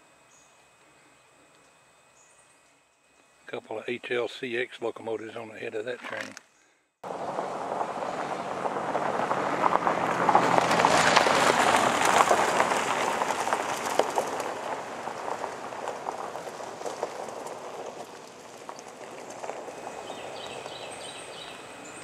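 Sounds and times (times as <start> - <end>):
tyres crunching over gravel: 7.1 - 22.0.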